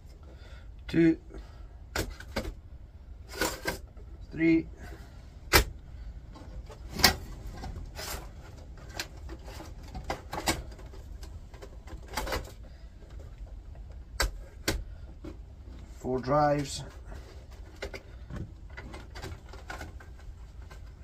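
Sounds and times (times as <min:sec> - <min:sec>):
metal sliding and scraping: 0:06.5 - 0:10.9.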